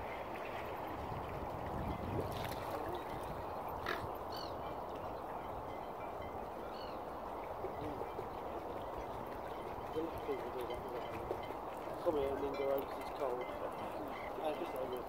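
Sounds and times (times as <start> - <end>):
water: 0.0 - 15.0
wind: 0.0 - 15.0
high bird calls: 3.5 - 5.8, 6.5 - 10.0, 12.6 - 15.0.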